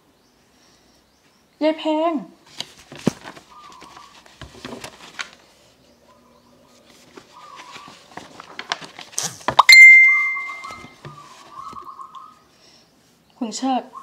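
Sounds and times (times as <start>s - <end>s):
soft chirps: 9.6s - 10.9s.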